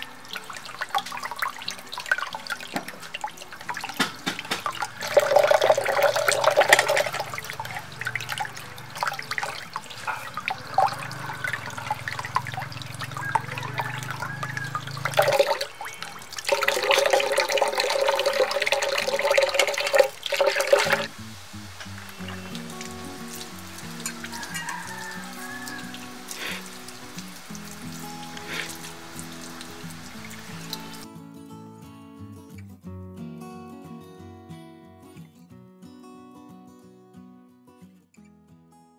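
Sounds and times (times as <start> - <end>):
tap water running and splashing: 0.0 - 31.1.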